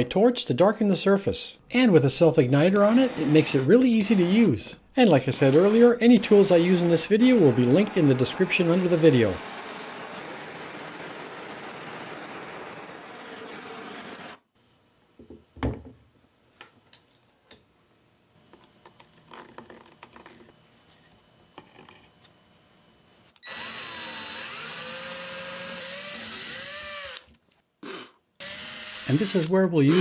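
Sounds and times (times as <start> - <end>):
power drill boring into wood: 2.7 - 4.5, 5.3 - 14.4, 23.4 - 27.3, 28.4 - 30.0
quiet taps and knock: 15.2 - 16.0.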